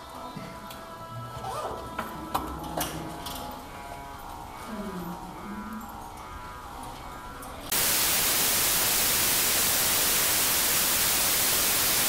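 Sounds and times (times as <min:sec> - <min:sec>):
faint music: 0:00.0 - 0:08.4
television static hiss: 0:07.6 - 0:12.0.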